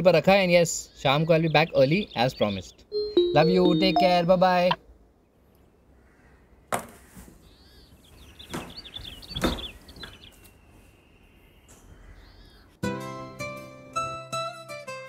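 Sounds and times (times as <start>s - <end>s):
small birds chirping: 0.0s - 6.4s, 7.4s - 12.8s.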